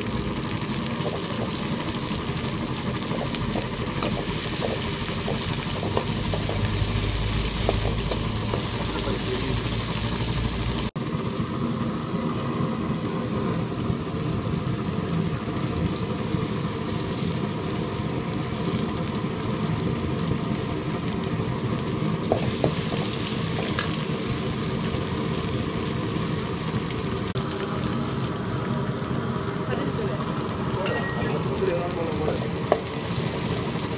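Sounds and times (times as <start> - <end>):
food sizzling in hot oil: 0.0 - 33.9.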